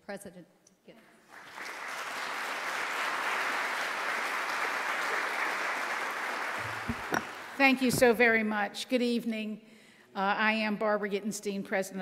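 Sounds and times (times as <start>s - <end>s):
audience applauding: 1.3s - 7.6s.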